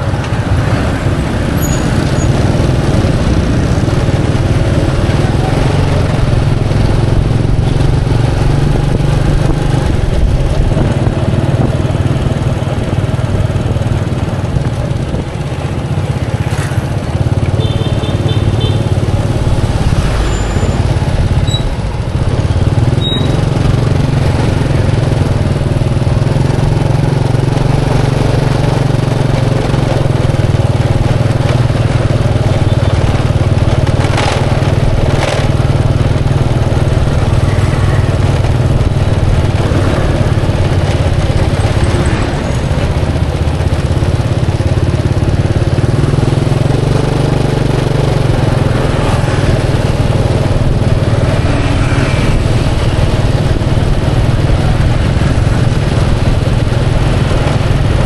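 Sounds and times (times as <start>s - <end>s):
motorcycle engines running: 0.0s - 58.0s
street traffic: 0.0s - 58.0s.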